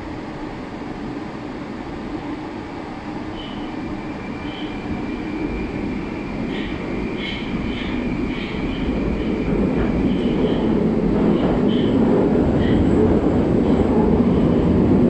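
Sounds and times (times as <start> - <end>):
train wheels rumbling: 3.1 - 15.0.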